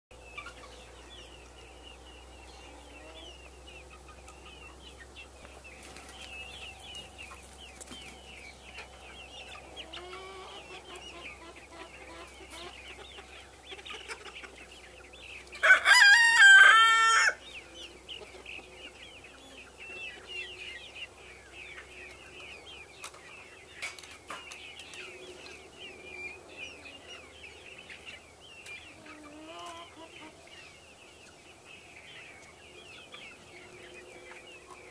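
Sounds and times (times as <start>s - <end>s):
poultry clucking and chirping: 0.1s - 34.9s
rooster crowing: 15.6s - 17.4s.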